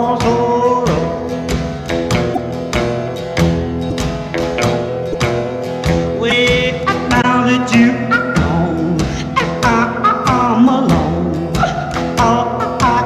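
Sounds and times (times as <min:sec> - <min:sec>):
pop-rock song with vocals: 0:00.0 - 0:01.5, 0:06.0 - 0:13.0.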